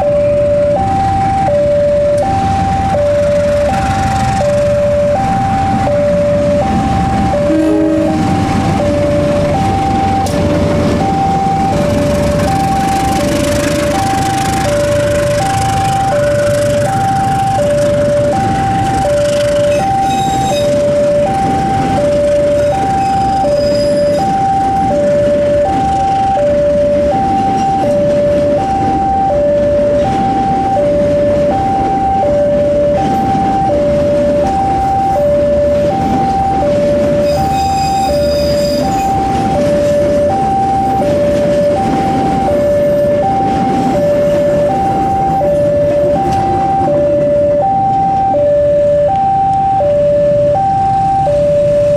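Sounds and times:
train coaches rumbling on rails: 0.0s - 48.4s
level crossing two-tone alarm: 0.0s - 51.9s.

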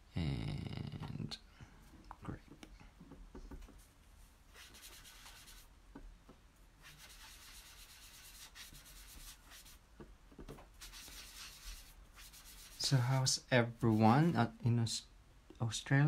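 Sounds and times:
sponge rubbing on cardstock: 4.5s - 5.7s, 6.8s - 9.8s, 10.8s - 14.4s.

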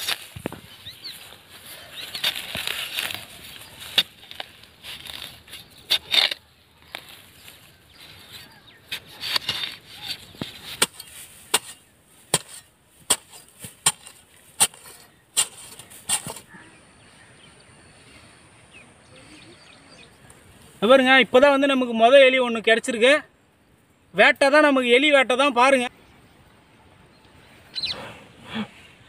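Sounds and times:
soil scraping and rustling: 0.0s - 16.8s
iron bar knocking into earth: 8.9s - 16.5s.

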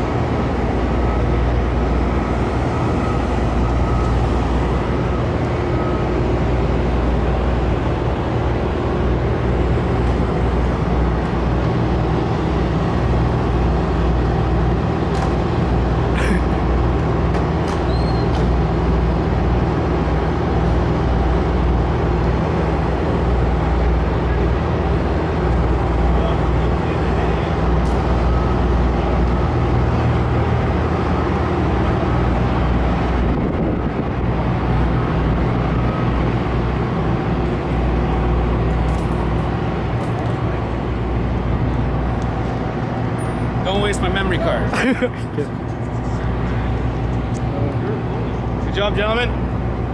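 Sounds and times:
excavator diesel engines running: 0.0s - 49.9s.

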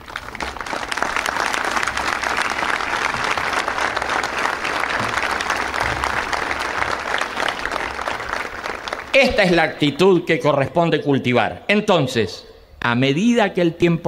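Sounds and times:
crowd applauding: 0.0s - 10.2s.

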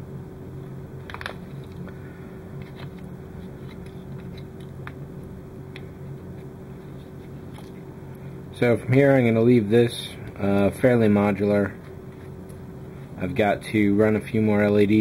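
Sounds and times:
steady low hum: 0.0s - 15.0s
plastic part clicks and crinkles: 1.0s - 2.0s.

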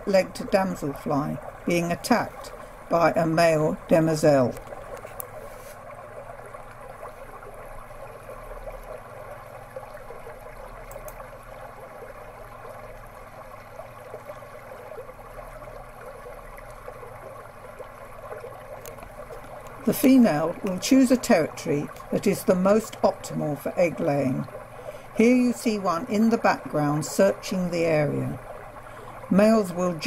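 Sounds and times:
running water: 0.0s - 30.0s.

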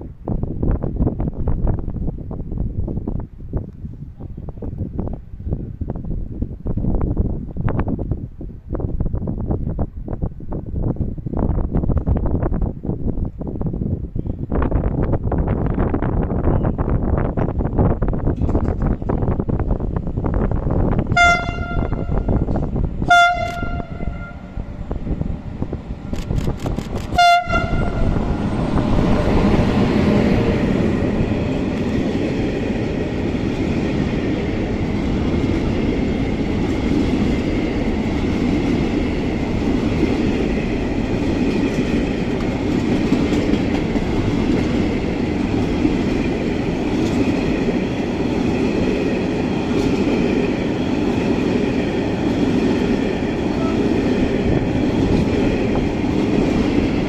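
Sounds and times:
freight train rumbling past: 0.0s - 57.0s
train horn blasts: 21.1s - 24.6s, 27.1s - 28.4s, 53.5s - 54.0s.

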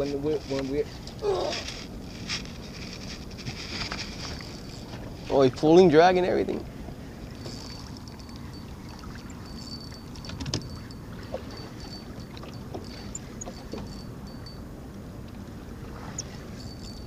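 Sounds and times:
wind and water: 0.0s - 17.0s
fishing reel drag buzzing: 7.4s - 10.9s.

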